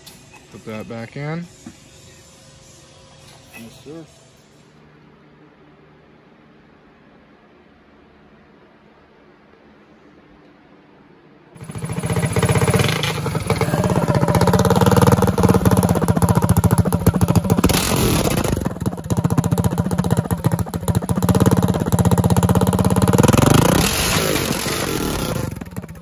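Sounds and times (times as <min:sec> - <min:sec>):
small engine loud rapid firing: 0:11.6 - 0:26.0.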